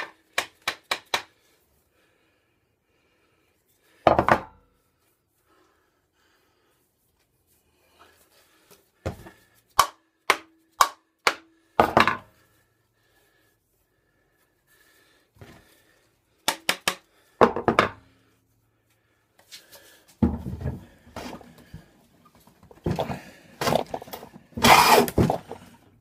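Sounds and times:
wood scraping: 22.7 - 25.8.

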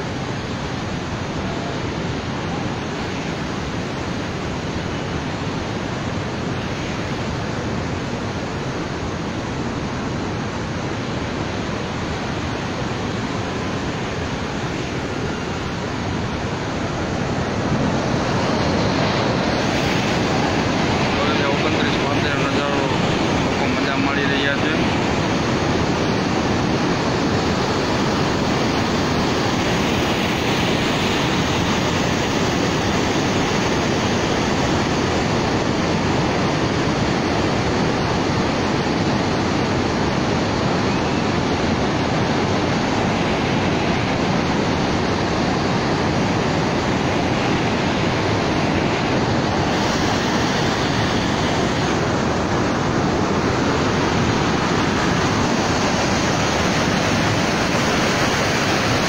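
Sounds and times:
water rushing from dam spillway: 0.0 - 59.0.

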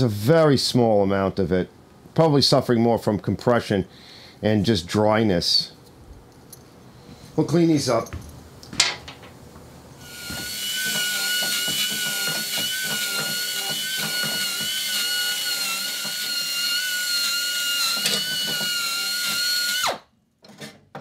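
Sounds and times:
drill whining: 10.0 - 20.1.

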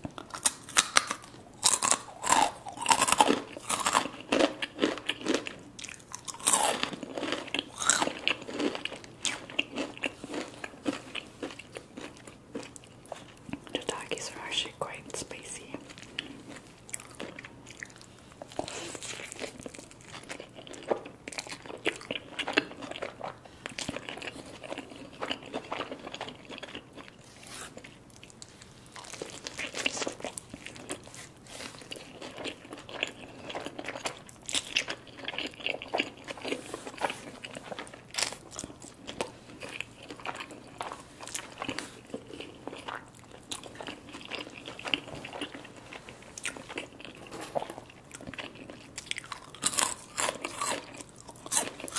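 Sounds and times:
person chewing with crunches: 0.0 - 51.9.

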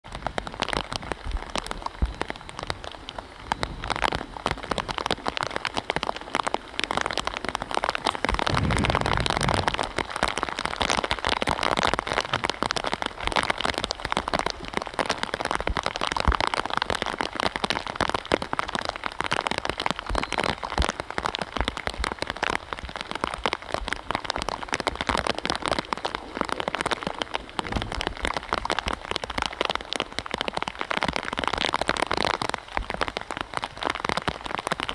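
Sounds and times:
steady rain falling: 0.0 - 34.9
low thump: 8.4 - 9.9, 27.6 - 28.2.

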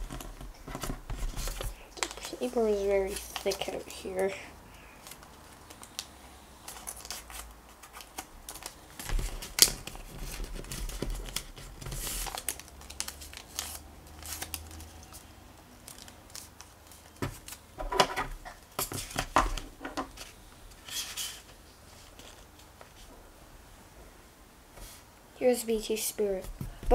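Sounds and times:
paper being folded and creased: 0.0 - 4.4, 6.7 - 23.1.

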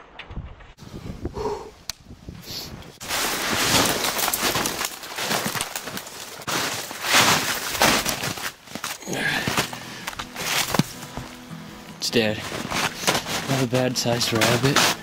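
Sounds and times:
brush scraping: 3.0 - 8.8, 12.2 - 15.0
footsteps crunching through snow: 3.0 - 15.0.

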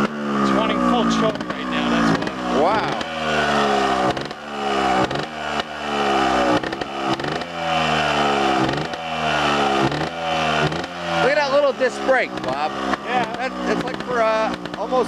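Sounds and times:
motorbike engine revving: 0.0 - 15.0.

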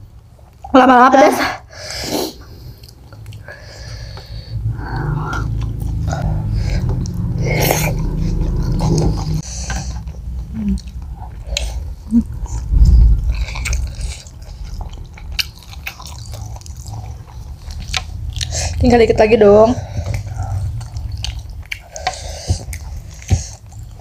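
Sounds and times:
people chewing fried chicken: 2.3 - 18.9, 19.7 - 24.0
low rumble: 10.2 - 21.6
loud low thump: 12.7 - 13.6.

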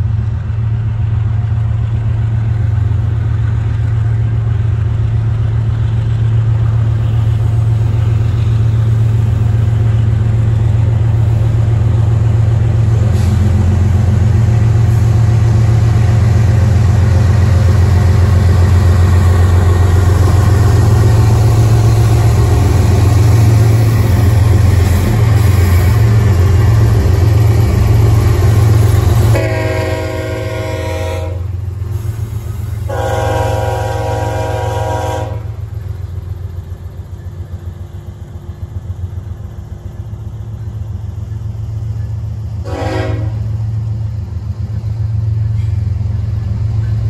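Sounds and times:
diesel locomotive engine rumble: 0.0 - 47.0
train wheels rumbling on rail: 0.0 - 47.0
locomotive air horn blasts: 29.3 - 31.5, 32.9 - 35.6, 42.6 - 43.5.

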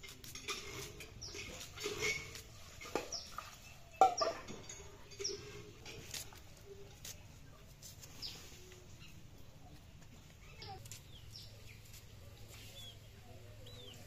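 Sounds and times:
chickens chirping: 8.1 - 14.0.

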